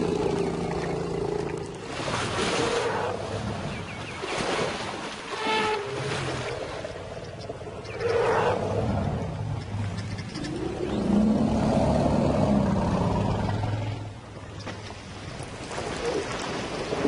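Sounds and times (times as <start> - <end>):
lions growling and snarling: 6.5 - 14.2.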